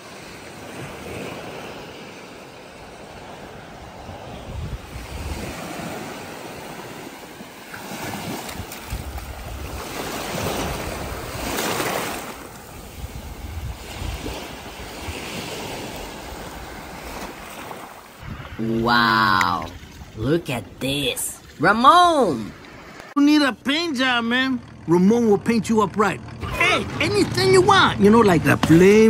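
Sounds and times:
ocean surf breaking: 0.0 - 29.0
wind buffeting microphone: 2.8 - 6.8, 8.1 - 17.5, 18.2 - 20.8.

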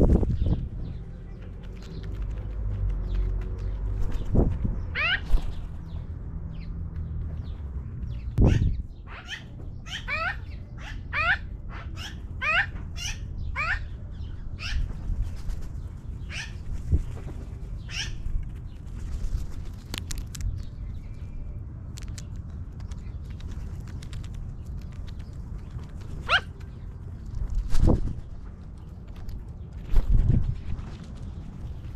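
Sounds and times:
low background rumble: 0.0 - 31.9
magpies calling: 4.9 - 6.0, 8.4 - 15.0, 16.2 - 16.6, 17.8 - 18.2, 25.9 - 26.9.

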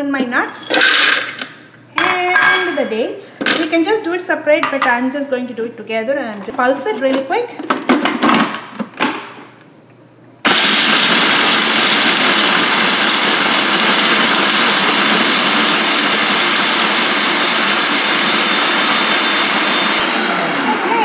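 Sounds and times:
food processor chopping nuts: 10.5 - 21.0.

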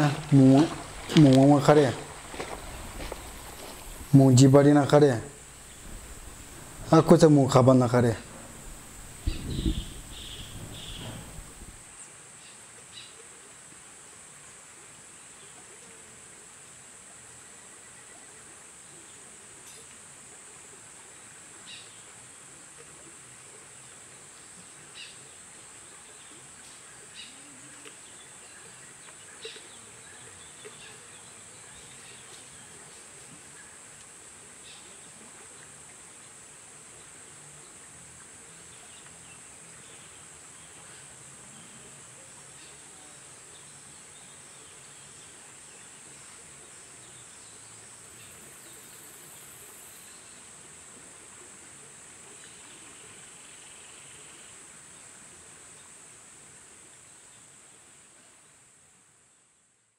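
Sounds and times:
insects droning: 0.0 - 11.8, 38.7 - 57.6.

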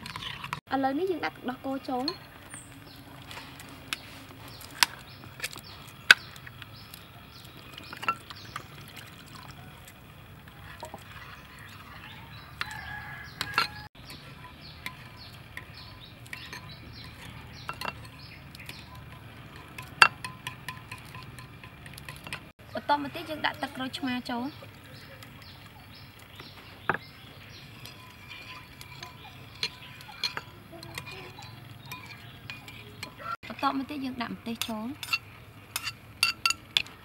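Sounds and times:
metal spoon stirring sauce: 0.0 - 22.5, 23.2 - 37.0
utensils clinking on dishes: 7.3 - 9.8, 10.4 - 22.5, 23.2 - 33.7, 34.5 - 37.0.

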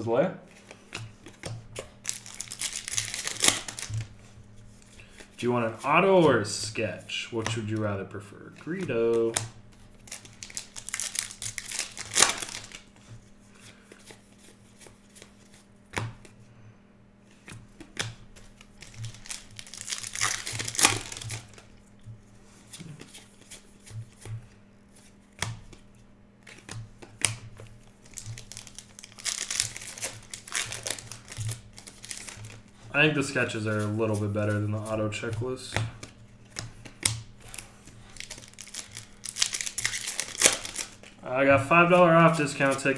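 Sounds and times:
cards clicking and tapping: 0.6 - 4.1, 7.4 - 7.8, 8.6 - 16.4, 17.3 - 21.7, 22.7 - 41.2
foil wrappers tearing and crinkling: 1.9 - 4.1, 9.9 - 13.0, 18.6 - 21.7, 27.2 - 36.1, 37.0 - 41.1.

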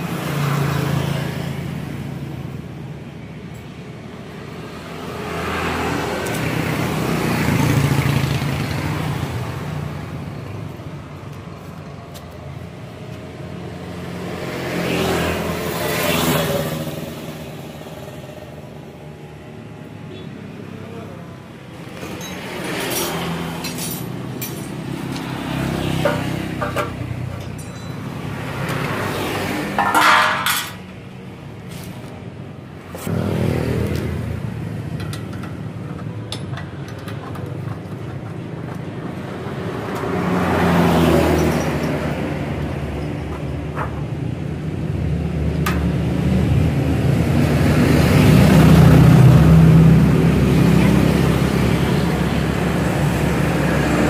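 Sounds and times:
vehicles passing: 0.0 - 54.0
metal clinks: 22.0 - 24.8, 26.7 - 28.4.

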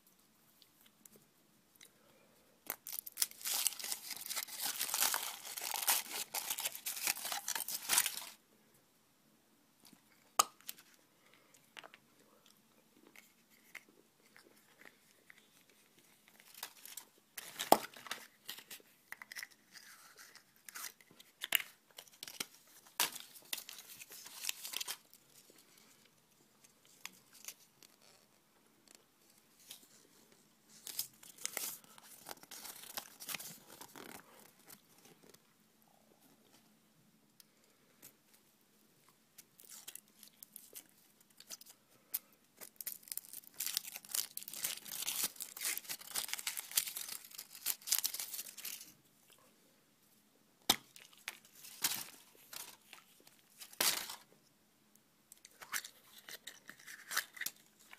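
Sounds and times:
packaging crinkling and tearing: 2.7 - 8.4, 13.2 - 25.2, 30.7 - 35.4, 39.6 - 48.9, 50.7 - 54.3, 55.4 - 57.9.

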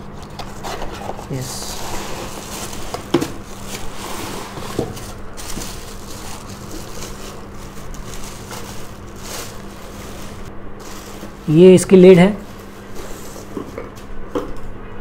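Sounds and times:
plastic bag crinkling and rustling: 0.1 - 14.1.

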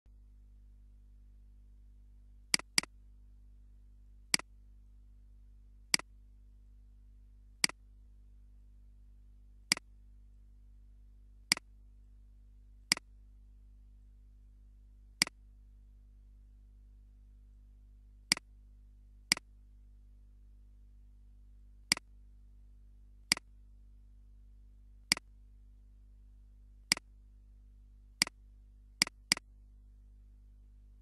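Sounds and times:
faint low hum: 0.1 - 31.0
computer mouse clicks: 2.6 - 2.9, 18.3 - 18.5, 19.3 - 19.5, 21.9 - 22.1, 23.3 - 23.5, 25.1 - 25.3, 26.9 - 27.1, 29.0 - 29.5.

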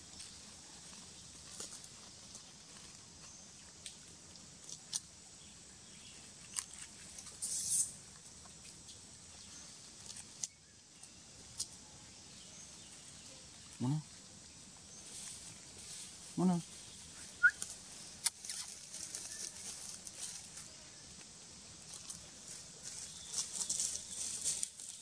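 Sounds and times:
hissing rustle: 6.4 - 10.5, 14.4 - 25.0.

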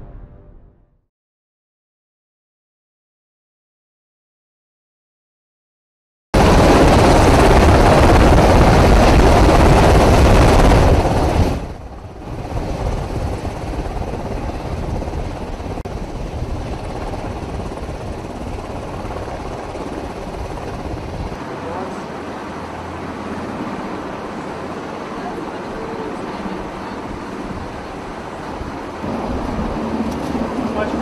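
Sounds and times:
rushing rumbling noise: 6.4 - 21.9, 22.5 - 31.0.

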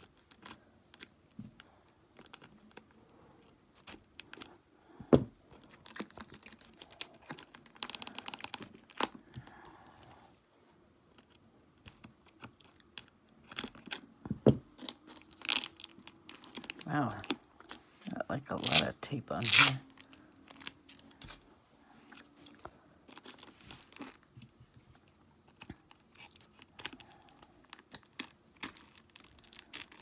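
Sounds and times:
plastic wrap crinkling: 5.6 - 9.2, 14.7 - 21.5, 22.1 - 24.4, 25.6 - 30.0.

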